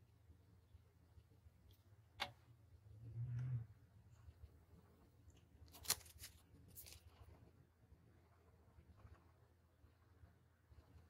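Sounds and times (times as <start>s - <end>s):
paper tissue crinkling: 5.6s - 7.3s.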